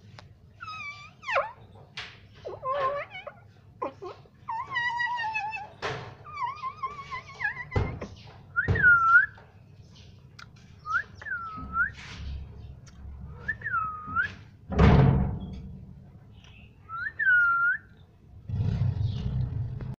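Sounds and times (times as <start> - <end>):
parakeet whistling: 8.6 - 9.4, 13.3 - 14.4, 16.9 - 18.0.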